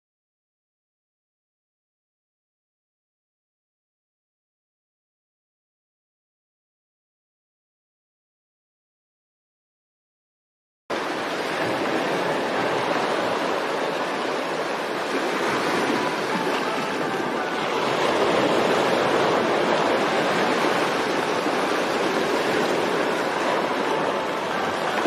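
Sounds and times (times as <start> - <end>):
rushing water: 10.9 - 25.0.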